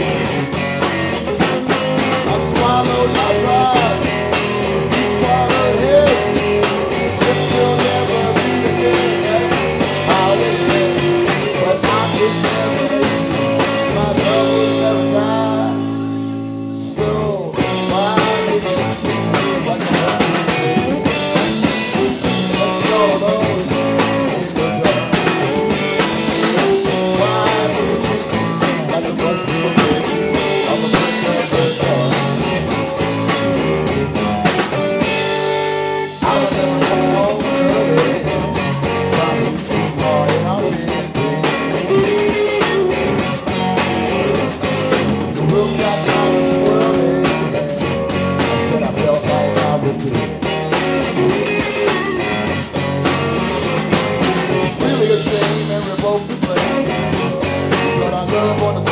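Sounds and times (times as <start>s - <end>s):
bass guitar: 0.0s - 58.9s
drum kit: 0.0s - 58.9s
electric guitar: 0.0s - 58.9s.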